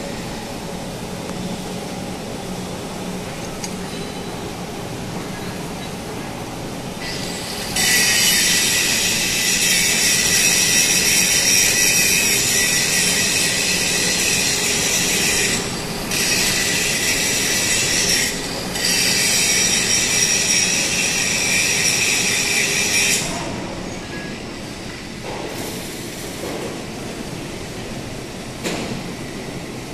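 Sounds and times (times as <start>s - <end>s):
welding equipment hiss and whine: 6.9s - 26.5s.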